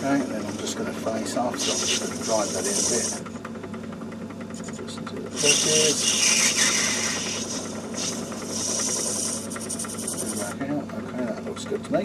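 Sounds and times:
turning cut scraping hiss: 0.0 - 3.3, 5.3 - 10.6
metal lathe running: 0.0 - 11.8.

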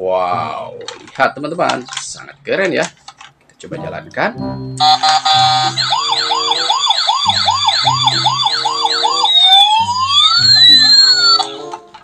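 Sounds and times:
toy ambulance electronic siren: 4.8 - 11.8.

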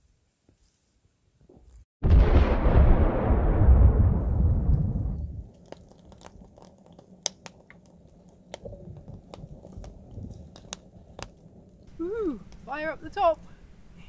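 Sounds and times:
low rumble: 2.0 - 12.7
wood fire crackling and popping: 2.1 - 13.4.

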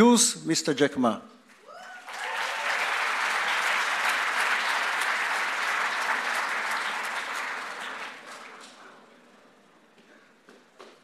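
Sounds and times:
large audience applauding: 1.7 - 9.2.

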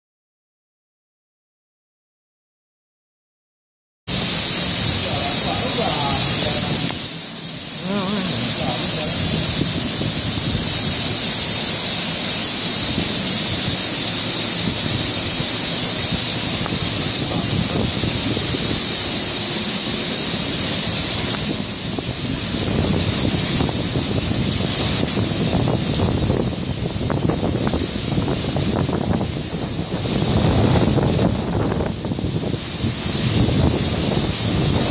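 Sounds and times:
high-pressure water jets hissing: 4.1 - 34.9.

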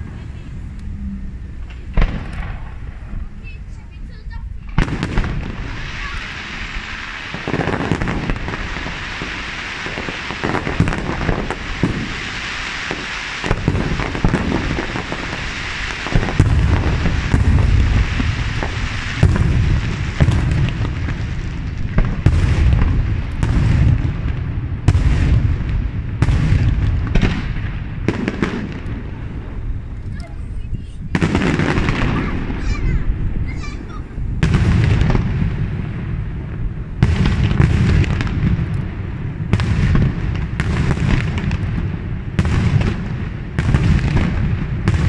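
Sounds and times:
crackling hiss: 0.0 - 45.0
firework shells bursting: 1.6 - 3.2.

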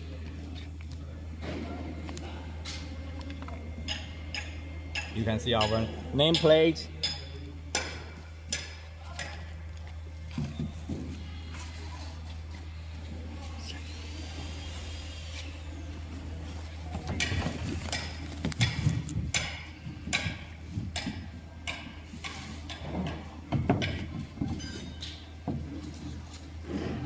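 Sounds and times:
low hum: 0.0 - 6.2.

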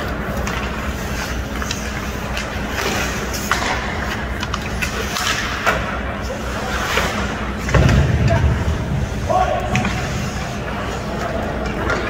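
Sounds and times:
skate blades scraping ice: 0.0 - 7.8
hockey sticks and puck clacking: 0.0 - 12.0.

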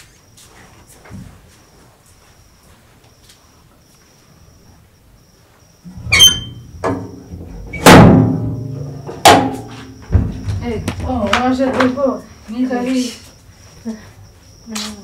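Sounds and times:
loud ringing hits: 7.7 - 9.8.

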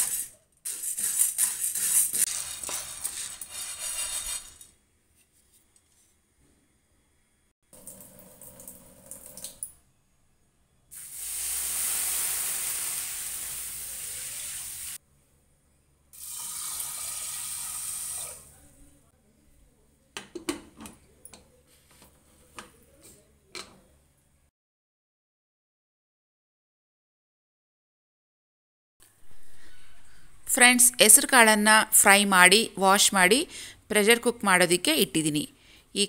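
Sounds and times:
water running from tap: 7.8 - 9.7, 11.0 - 15.0, 16.2 - 18.4.

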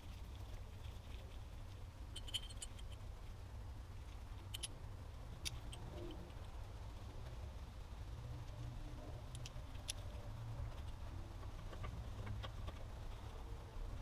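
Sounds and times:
low steady hum: 0.0 - 14.0
metallic clicks and clinks: 2.1 - 3.1, 4.4 - 4.8.

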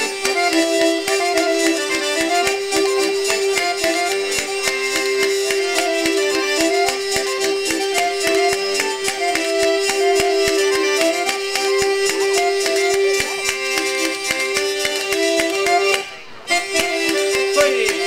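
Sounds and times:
button accordion: 0.0 - 18.0
clicking beat: 0.0 - 18.0
hurdy-gurdy drone and melody: 0.0 - 18.0.

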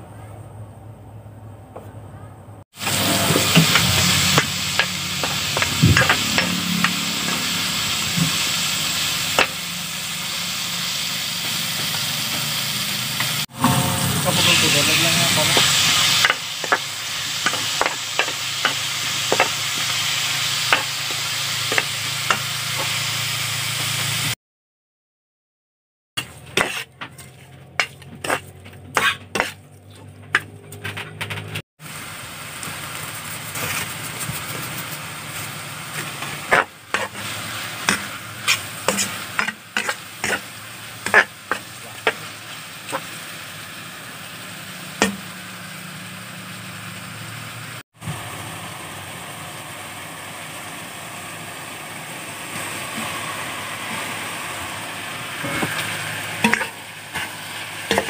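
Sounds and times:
food sizzling in oil: 2.7 - 24.4, 26.2 - 29.6, 31.8 - 58.0
spatula scraping a pan: 2.8 - 8.6, 13.2 - 20.0, 26.2 - 31.0, 33.5 - 42.3, 55.4 - 58.0.

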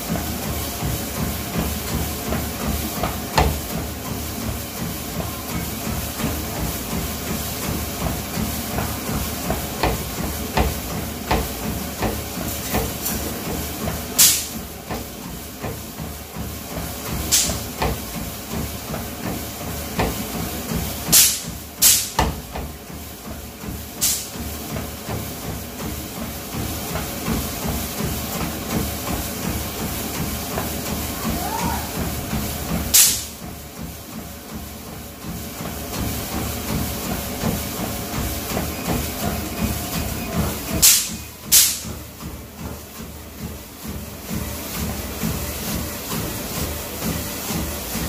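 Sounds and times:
running footfalls on treadmill belt: 0.0 - 48.0
treadmill running: 0.0 - 48.0
loud rushes of hiss: 14.2 - 14.5, 21.1 - 22.1, 24.0 - 24.3, 40.8 - 41.8.

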